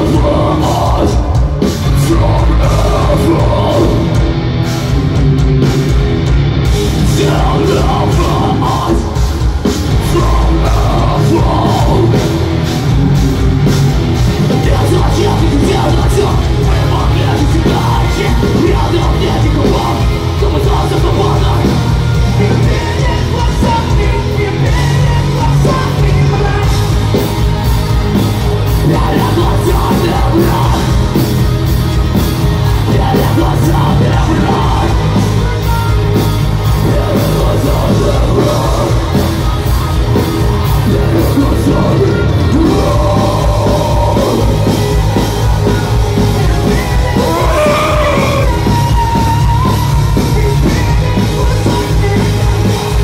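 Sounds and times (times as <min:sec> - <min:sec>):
bass guitar: 0:00.0 - 0:53.0
distorted electric guitars: 0:00.0 - 0:53.0
pounding drums: 0:00.0 - 0:53.0
shouted vocal: 0:46.4 - 0:49.8.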